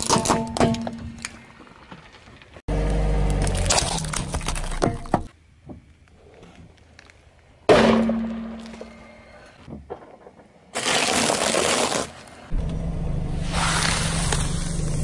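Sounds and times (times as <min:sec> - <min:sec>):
crunching under car tyre: 0:01.6 - 0:05.3.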